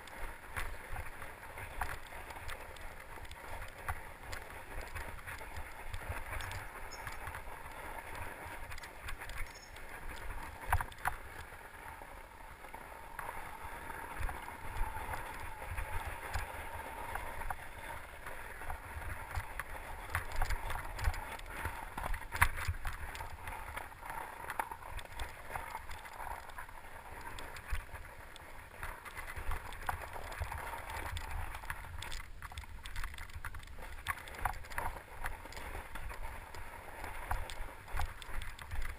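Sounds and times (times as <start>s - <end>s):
bike knocking and rattling: 0.0s - 11.5s, 29.1s - 38.9s
bike tyres rolling: 0.0s - 38.9s.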